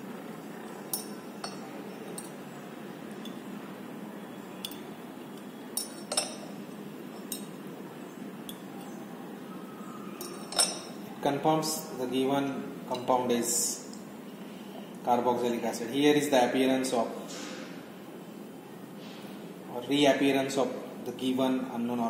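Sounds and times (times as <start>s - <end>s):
low room hiss: 0.0s - 22.0s
glass dropper clinking on test tube: 0.7s - 2.4s, 4.6s - 6.5s, 7.1s - 7.6s, 10.2s - 11.0s.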